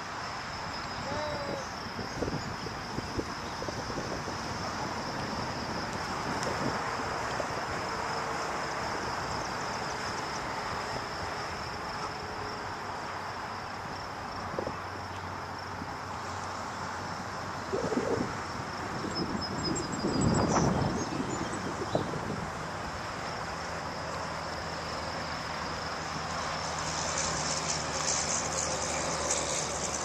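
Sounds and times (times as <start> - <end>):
distant road traffic: 0.0 - 30.0
insects droning: 0.0 - 30.0.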